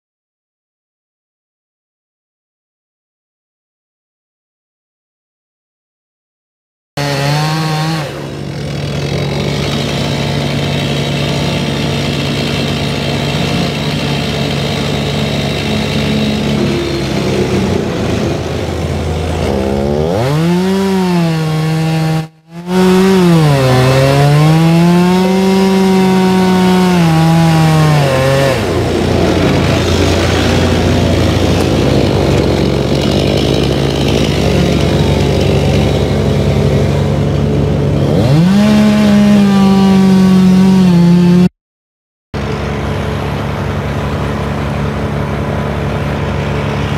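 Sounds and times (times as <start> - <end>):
chainsaw cutting wood: 7.0 - 41.5.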